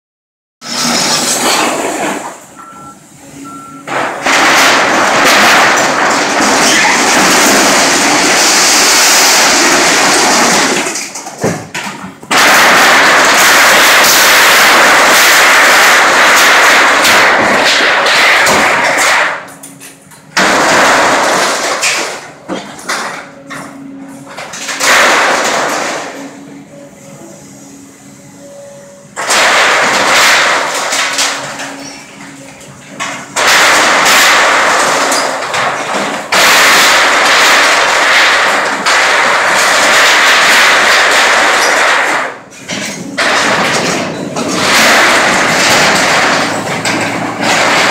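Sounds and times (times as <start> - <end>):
metal panels tearing and crumpling: 0.6 - 2.5, 3.9 - 26.4, 29.2 - 47.9
excavator engine hum: 0.7 - 4.2.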